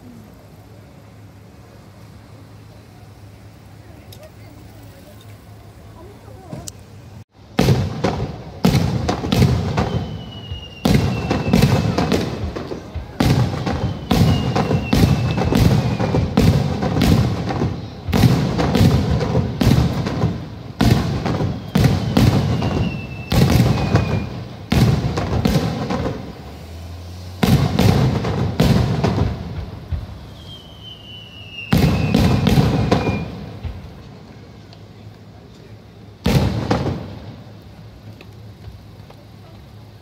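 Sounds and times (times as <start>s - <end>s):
firework shells bursting: 7.5s - 34.9s, 36.1s - 39.4s
falling firework whistle: 7.6s - 34.0s.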